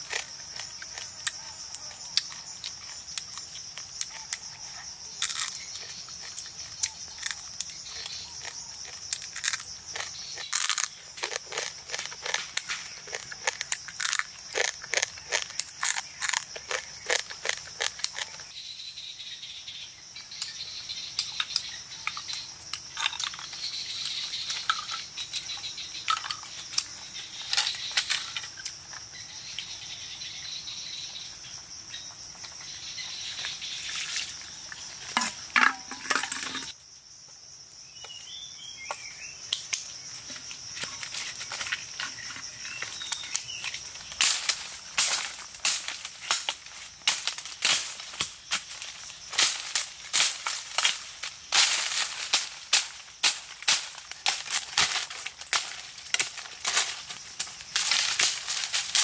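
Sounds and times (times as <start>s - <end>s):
quick crisp crunches: 5.2s - 18.5s
dry sticks snapping and knocking: 6.2s - 18.3s, 40.8s - 59.0s.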